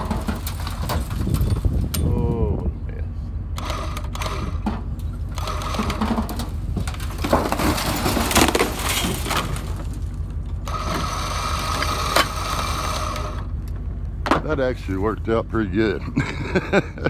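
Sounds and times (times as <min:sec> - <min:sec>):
steel cab scraping and crashing: 0:00.0 - 0:01.9, 0:04.3 - 0:13.5
low hum: 0:00.0 - 0:17.0
winch whining: 0:03.5 - 0:07.2, 0:09.3 - 0:13.9.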